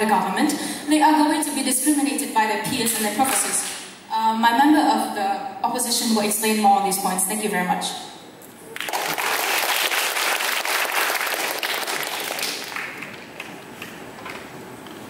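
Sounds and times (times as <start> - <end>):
audience applauding: 8.7 - 13.6.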